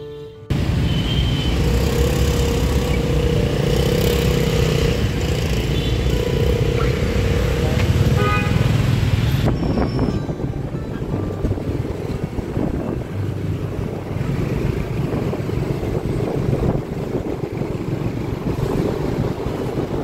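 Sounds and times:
steady engine drone: 0.5s - 8.6s, 10.6s - 20.0s
motor scooter engines: 0.5s - 20.0s.

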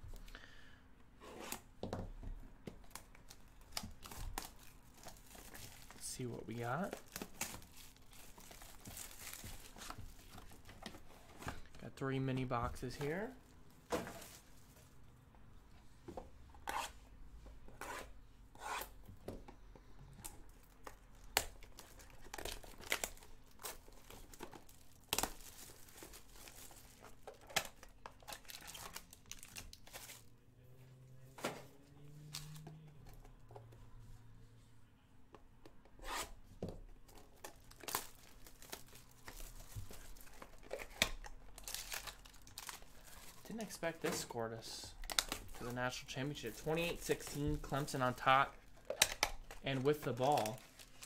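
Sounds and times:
cardboard and wrapper crinkling: 2.8s - 11.8s, 20.4s - 30.3s, 37.0s - 51.0s
card pack wrappers tearing: 37.4s - 44.0s, 44.6s - 51.0s.

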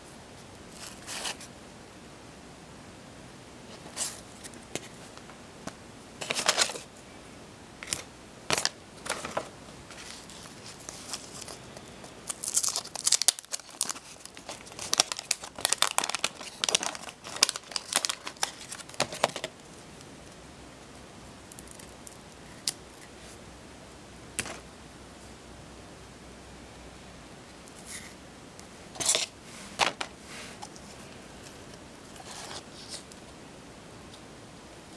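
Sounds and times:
wax paper pack crinkling and tearing: 12.2s - 19.6s.

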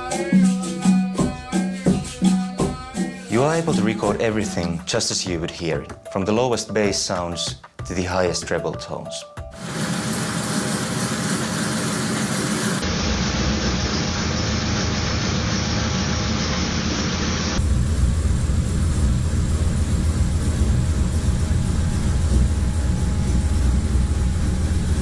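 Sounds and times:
engine idling: 9.6s - 16.3s, 17.5s - 25.0s.

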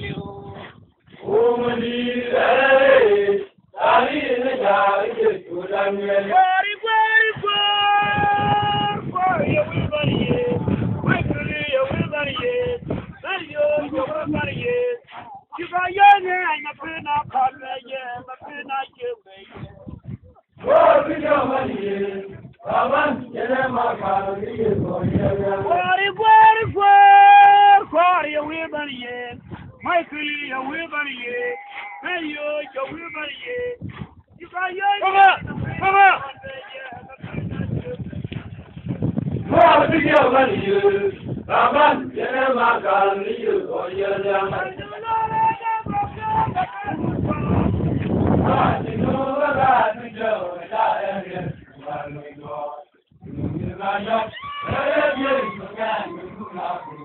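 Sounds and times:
men chanting together: 1.2s - 8.5s, 20.6s - 29.1s, 39.4s - 47.6s, 48.4s - 57.0s.

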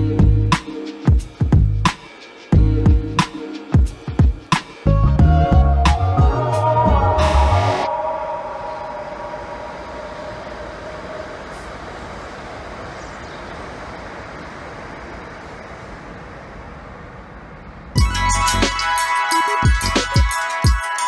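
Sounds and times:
music with a beat: 0.0s - 7.9s, 18.0s - 21.0s
electric train crossing steel bridge: 0.0s - 21.0s
faint whine: 6.8s - 18.0s.

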